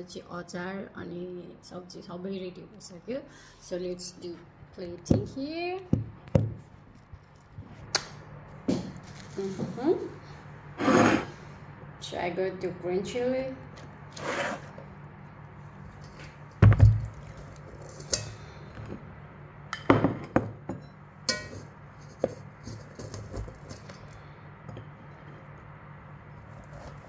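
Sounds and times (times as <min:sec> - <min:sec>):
soft scraping and handling: 0:08.9 - 0:11.5, 0:26.3 - 0:27.0.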